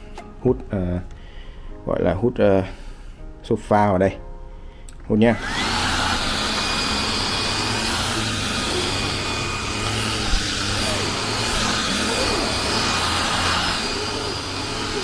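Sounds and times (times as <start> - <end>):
stick vacuum running: 5.4 - 15.0.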